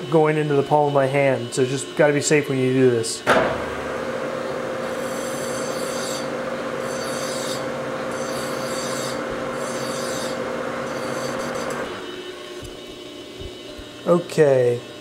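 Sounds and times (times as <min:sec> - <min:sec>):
lathe humming: 0:00.0 - 0:15.0
hand file scraping metal: 0:04.9 - 0:11.9.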